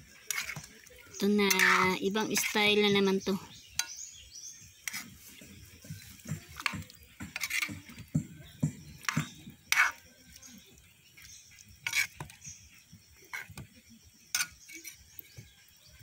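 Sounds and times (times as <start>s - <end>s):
sauce sloshing: 0.0s - 2.6s, 4.8s - 13.6s
ladle clinking and scraping a wok: 0.0s - 3.0s, 4.8s - 8.0s, 9.0s - 10.4s, 11.1s - 12.6s, 14.2s - 15.3s.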